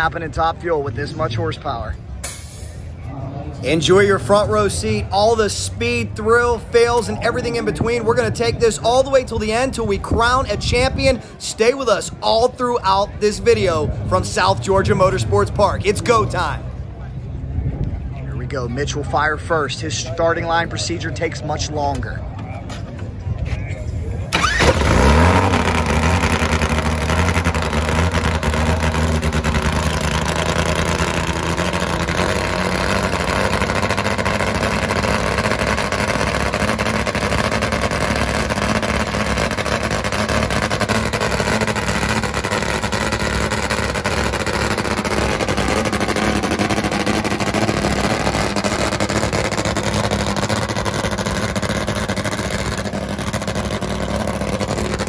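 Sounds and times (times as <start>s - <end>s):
motorcycle engine starting and idling: 24.2s - 55.0s.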